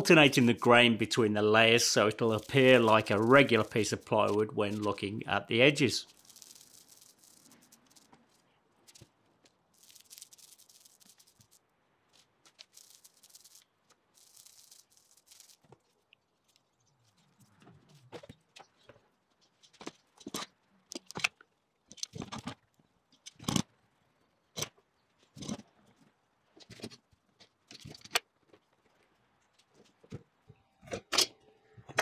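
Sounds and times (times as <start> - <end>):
plywood sheets scraping: 1.4 - 9.1.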